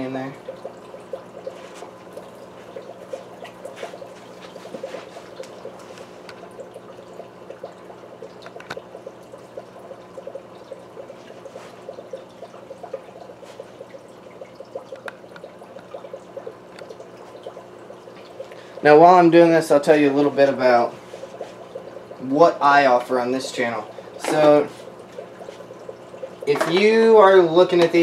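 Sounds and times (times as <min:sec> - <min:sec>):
filter water splashing and trickling: 0:00.0 - 0:28.0.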